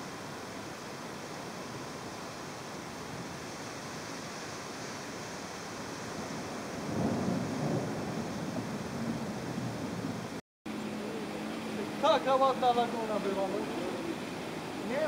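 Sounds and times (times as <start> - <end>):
rain and wind rushing: 0.0 - 10.4
thunder rumbling: 6.3 - 10.4.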